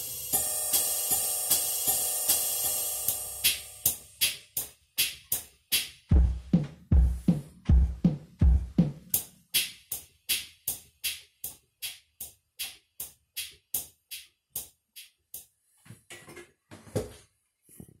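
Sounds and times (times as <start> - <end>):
sharp cymbal ticks: 0.0 - 5.9
keyboard bass drum beats: 0.0 - 14.6.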